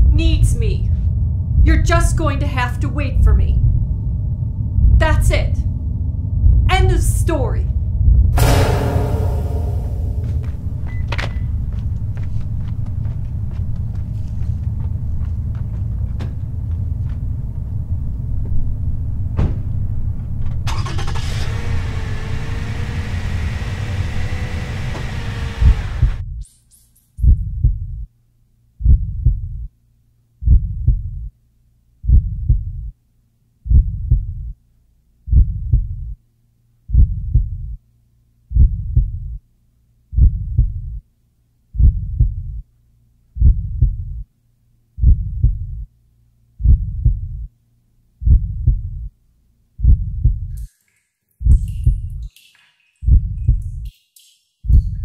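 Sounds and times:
faint low hum: 0:00.0 - 0:20.6
heavy heartbeat thumps: 0:06.4 - 0:06.7, 0:27.2 - 0:28.1, 0:28.8 - 0:29.7, 0:30.4 - 0:31.3, 0:32.0 - 0:32.9, 0:33.6 - 0:34.6, 0:35.3 - 0:36.2, 0:36.9 - 0:37.8, 0:38.5 - 0:39.4, 0:40.1 - 0:41.0, 0:41.8 - 0:42.6, 0:43.4 - 0:44.2, 0:45.0 - 0:45.9, 0:46.6 - 0:47.5, 0:48.2 - 0:49.1, 0:49.8 - 0:50.5, 0:51.4 - 0:52.2, 0:53.0 - 0:53.9.

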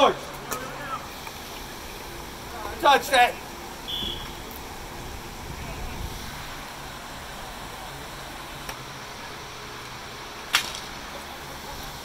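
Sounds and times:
hockey sticks clacking: 0:10.5 - 0:11.0.

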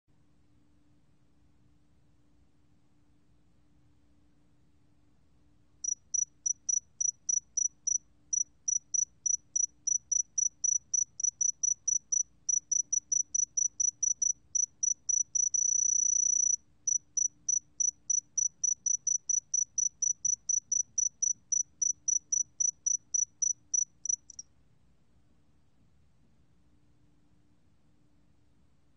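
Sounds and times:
cricket chirping: 0:05.8 - 0:24.5.

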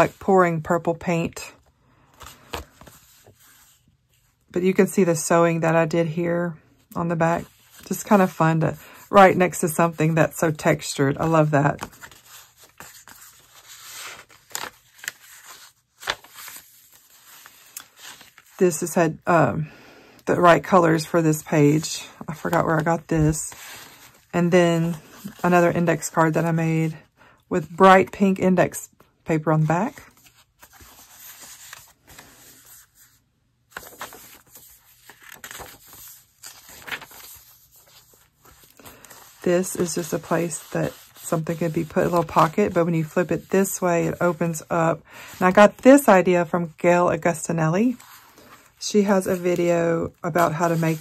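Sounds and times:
paper pages rustling: 0:01.6 - 0:04.4, 0:07.4 - 0:19.0, 0:20.6 - 0:26.6, 0:29.7 - 0:46.2, 0:47.9 - 0:51.0
sharp paper crackles: 0:11.8 - 0:18.6, 0:33.7 - 0:42.7.

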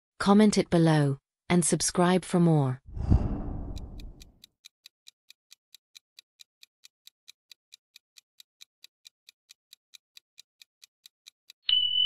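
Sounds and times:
clock ticking: 0:03.2 - 0:04.4, 0:05.0 - 0:11.6.

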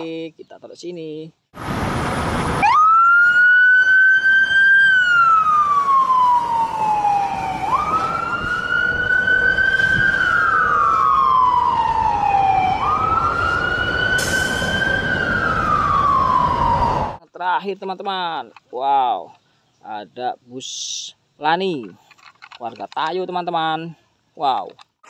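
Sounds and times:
fire truck siren wailing: 0:01.6 - 0:17.2.

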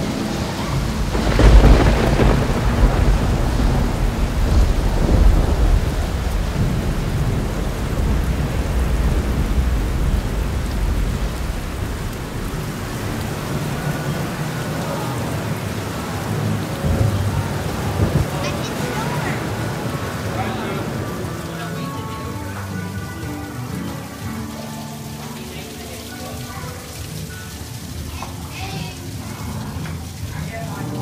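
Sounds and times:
thunder rumbling: 0:00.0 - 0:21.6
rain rushing: 0:00.0 - 0:31.0.

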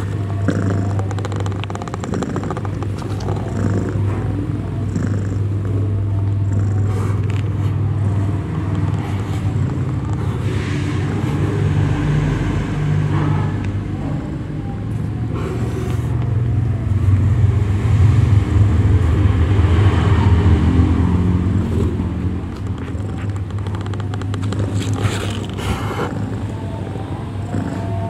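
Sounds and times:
cat purring: 0:00.0 - 0:11.5, 0:21.4 - 0:28.0.

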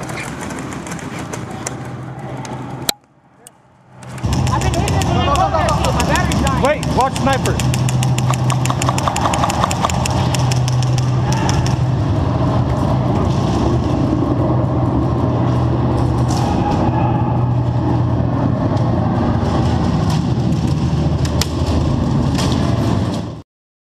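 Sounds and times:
loud steady low hum: 0:01.9 - 0:23.4
airsoft guns firing rapidly: 0:04.2 - 0:11.8.

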